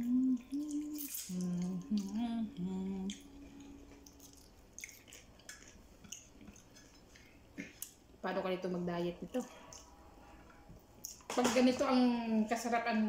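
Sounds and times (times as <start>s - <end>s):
woman humming: 0.0s - 4.4s
faint eating clicks: 3.0s - 8.0s.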